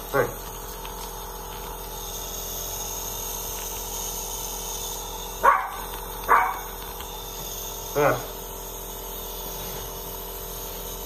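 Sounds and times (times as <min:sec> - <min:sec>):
nebulizer compressor hum: 0:00.0 - 0:11.0
small dog barking: 0:05.4 - 0:06.8.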